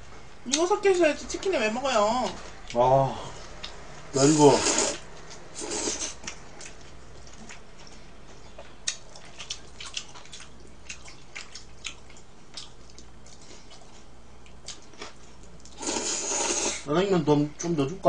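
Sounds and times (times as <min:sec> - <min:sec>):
noodle slurp: 0:04.3 - 0:05.0, 0:05.6 - 0:06.2, 0:15.7 - 0:16.9
wet chewing smacks: 0:06.2 - 0:15.8.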